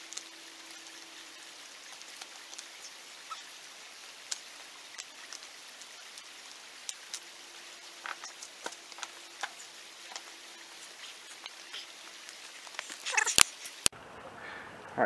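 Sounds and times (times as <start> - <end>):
steady hiss: 0.0 - 13.9
rocks and gravel clicking: 8.0 - 13.9.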